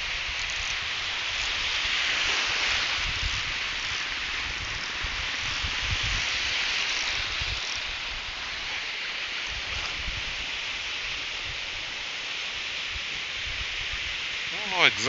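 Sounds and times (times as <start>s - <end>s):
wind buffeting microphone: 0.0s - 8.7s, 9.4s - 11.8s
ocean surf breaking: 14.3s - 15.0s.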